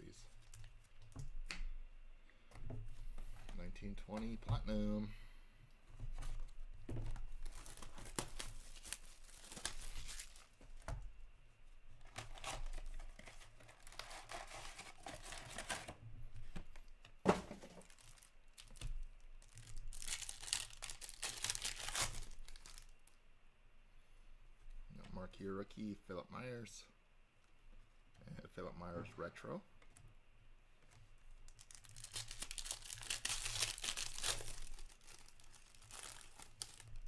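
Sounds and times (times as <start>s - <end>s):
shrink wrap tearing: 7.4s - 10.6s, 12.0s - 15.9s, 19.4s - 22.9s, 31.5s - 37.0s
foil pack tearing: 19.4s - 22.9s, 31.6s - 37.0s.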